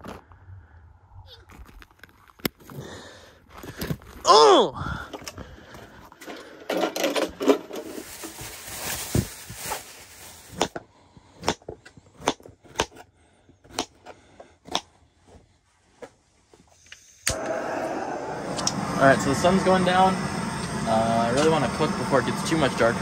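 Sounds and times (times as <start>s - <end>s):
gear rustling and clattering: 5.1s - 10.4s.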